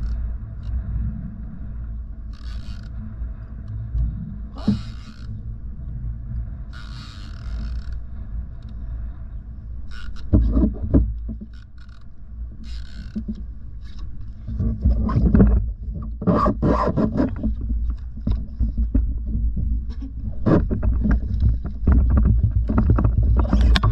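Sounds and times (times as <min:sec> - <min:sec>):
wind rumble on microphone: 0:00.0 - 0:11.6, 0:12.2 - 0:23.9
water washing against hull: 0:00.0 - 0:23.9
knocks and rattles on kayak: 0:04.5 - 0:05.4, 0:09.9 - 0:12.0, 0:12.6 - 0:23.9.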